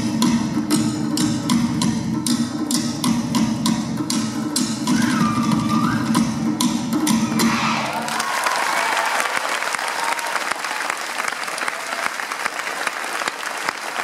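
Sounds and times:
audience applauding: 0:07.5 - 0:14.0.

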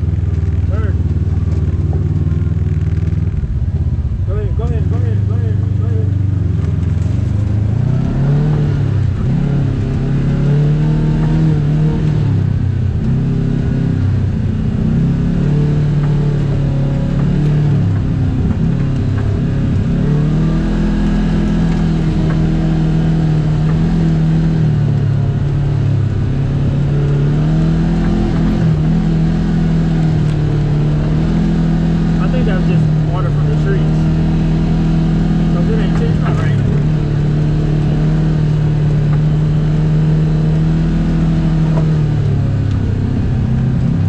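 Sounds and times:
utility vehicle engine revving: 0:00.0 - 0:44.0.

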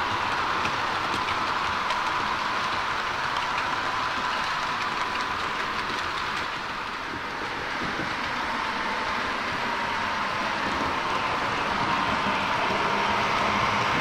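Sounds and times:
model train wheels whirring: 0:00.0 - 0:14.0
faint clicks of rail joints: 0:00.3 - 0:08.8.

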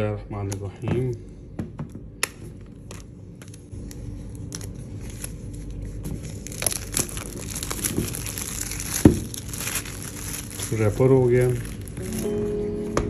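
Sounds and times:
plastic shrink-wrap crinkling: 0:02.6 - 0:12.6.

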